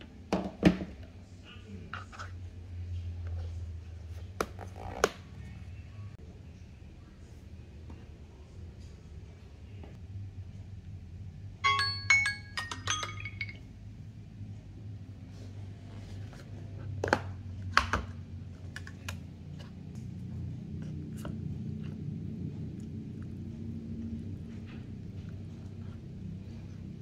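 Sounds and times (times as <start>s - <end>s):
low steady hum: 0.0s - 27.0s
smartphone timer alarm chiming: 11.6s - 13.6s.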